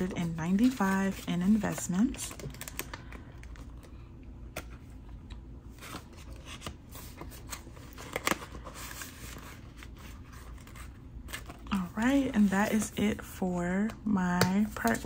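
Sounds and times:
banknotes rustling: 0.0s - 4.0s.

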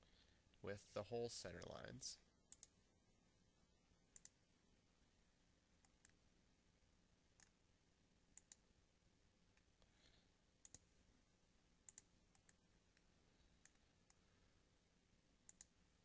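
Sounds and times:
computer mouse clicking: 2.5s - 2.8s, 4.1s - 4.4s, 5.8s - 6.2s, 7.4s - 7.6s, 8.4s - 8.7s, 10.6s - 10.9s, 11.8s - 14.2s, 15.4s - 15.8s.

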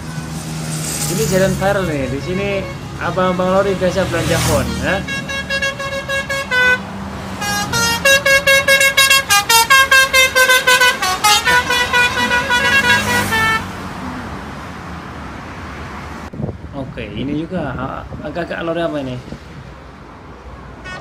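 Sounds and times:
traffic rumble: 0.0s - 21.0s
musical truck horn: 0.9s - 13.8s, 20.8s - 21.0s.

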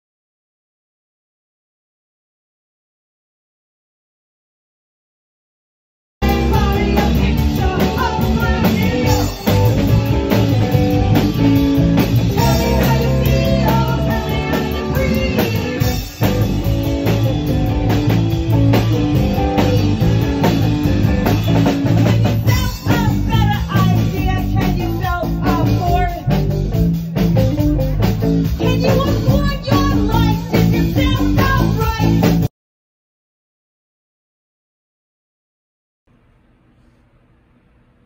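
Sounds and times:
woman singing into a microphone: 6.2s - 9.5s, 12.4s - 16.0s, 22.2s - 26.3s, 28.6s - 32.3s
drum kit: 6.2s - 32.5s
electric guitar: 6.2s - 32.5s.

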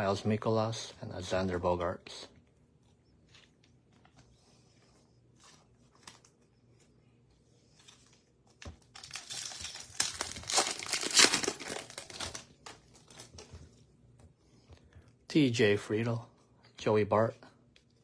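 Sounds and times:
wrapper crinkling and tearing: 8.8s - 13.5s.

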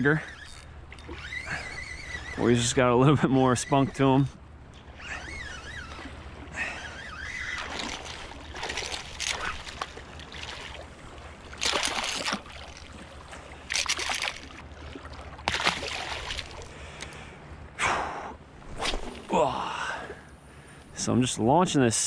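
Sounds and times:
fish thrashing and splashing: 5.6s - 16.7s.

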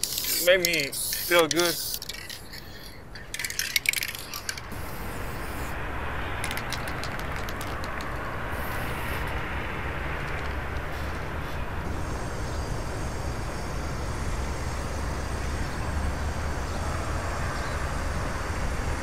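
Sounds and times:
scattered ticks: 0.0s - 4.7s, 6.4s - 8.2s
sharp metallic clicks and knocks: 0.0s - 4.7s, 6.4s - 8.3s
outdoor ambience hiss: 0.0s - 19.0s
steady low rumble: 4.2s - 19.0s.

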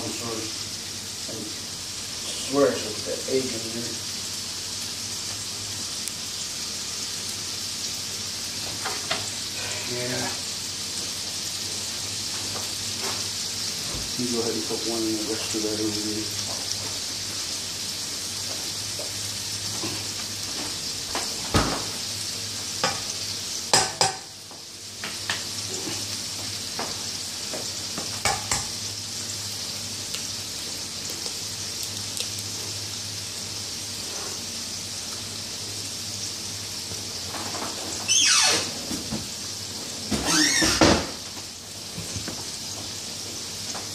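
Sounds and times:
patties sizzling in a skillet: 0.0s - 38.6s, 39.2s - 43.9s.

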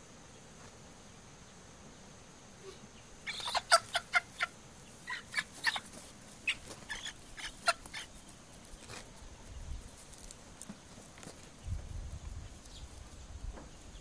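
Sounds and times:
hen squawking: 3.2s - 8.2s.

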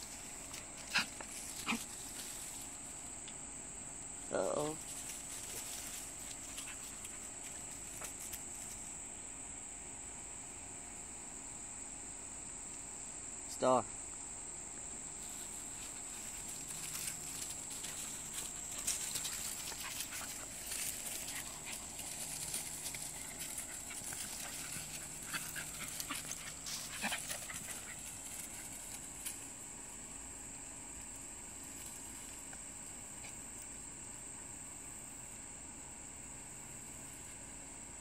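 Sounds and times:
dogs scuffling on leaves: 0.0s - 3.0s, 4.7s - 8.9s, 15.2s - 29.5s
dogs panting: 4.9s - 8.4s, 15.4s - 29.4s.

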